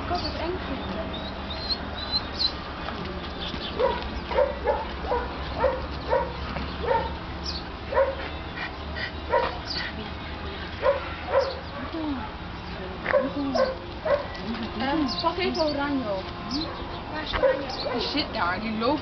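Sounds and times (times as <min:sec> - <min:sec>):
dog yipping and barking: 0:03.8 - 0:07.2, 0:07.9 - 0:08.2, 0:10.8 - 0:11.6, 0:13.1 - 0:14.4.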